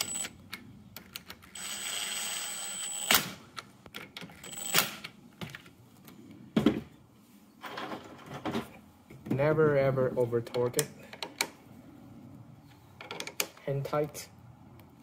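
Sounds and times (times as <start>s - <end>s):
cordless drill spinning: 1.5s - 3.2s
small clicks and knocks: 13.0s - 13.7s.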